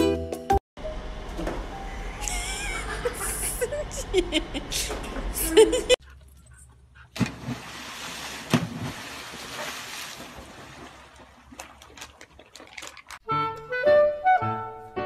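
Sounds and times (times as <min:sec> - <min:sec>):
water splashing against rock: 0:07.2 - 0:13.2.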